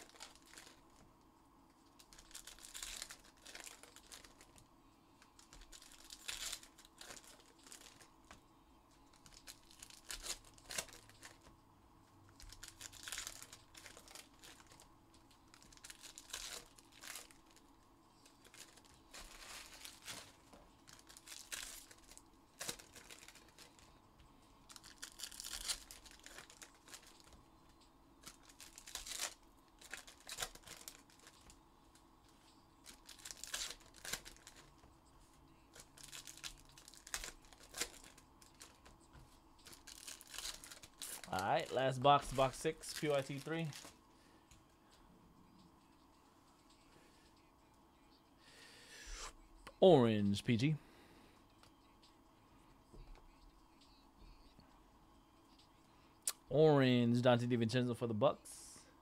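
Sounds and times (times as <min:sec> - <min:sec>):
plastic wrapping crackling: 0:00.0 - 0:00.9, 0:01.9 - 0:04.6, 0:05.2 - 0:08.1, 0:09.1 - 0:11.5, 0:12.4 - 0:17.6, 0:18.2 - 0:23.9, 0:24.6 - 0:27.4, 0:28.2 - 0:31.6, 0:32.8 - 0:34.9, 0:35.7 - 0:38.9, 0:39.6 - 0:44.0
wrapping tearing: 0:00.0 - 0:00.9, 0:01.9 - 0:04.6, 0:05.3 - 0:08.1, 0:09.1 - 0:11.5, 0:12.4 - 0:14.9, 0:15.5 - 0:17.6, 0:18.3 - 0:23.9, 0:24.7 - 0:27.4, 0:28.2 - 0:31.6, 0:32.8 - 0:34.8, 0:35.7 - 0:38.8, 0:39.6 - 0:43.9.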